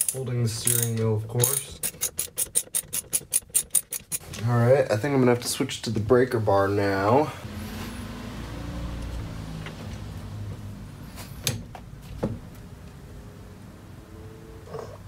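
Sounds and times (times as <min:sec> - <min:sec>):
metallic clicks and knocks: 0:00.0 - 0:04.4.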